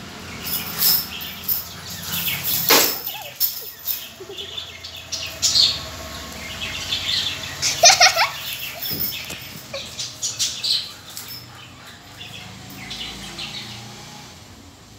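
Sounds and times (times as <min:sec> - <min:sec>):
dogs scuffling: 0:00.4 - 0:04.1, 0:08.0 - 0:13.0.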